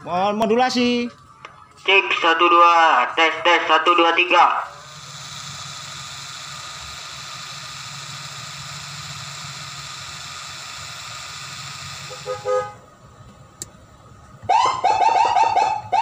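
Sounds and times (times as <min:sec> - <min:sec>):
car engine idling: 0:04.3 - 0:16.0
car horn toot: 0:12.1 - 0:12.9.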